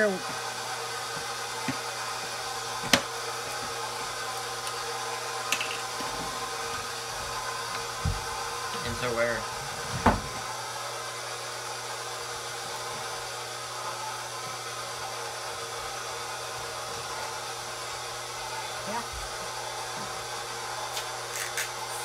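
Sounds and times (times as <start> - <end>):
stand mixer motor humming: 0.0 - 22.0.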